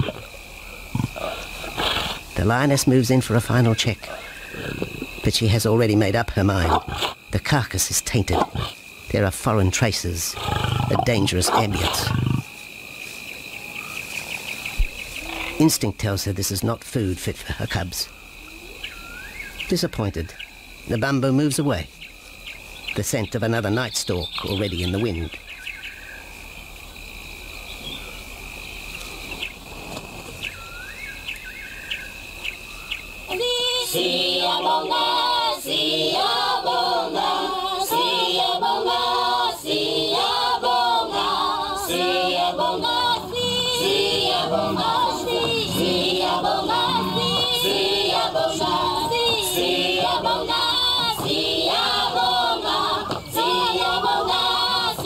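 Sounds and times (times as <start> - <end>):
choir singing: 33.3 - 55.0.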